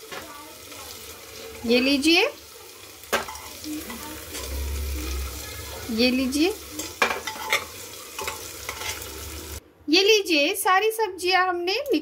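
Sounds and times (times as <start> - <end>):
hot pan sizzling: 0.0 - 9.6
metal spoon scraping and clinking: 6.7 - 9.2.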